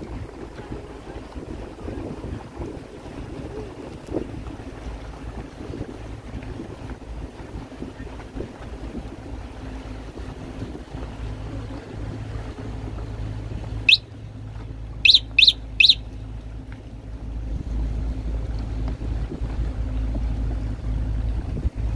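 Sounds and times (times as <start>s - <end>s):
boat engine droning: 0.0s - 21.9s
gulls calling: 13.2s - 16.5s.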